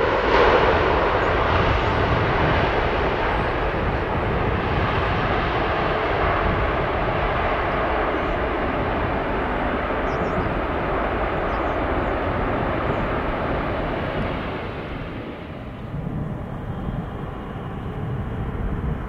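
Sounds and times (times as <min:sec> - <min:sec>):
jet engines roaring: 0:00.0 - 0:19.0.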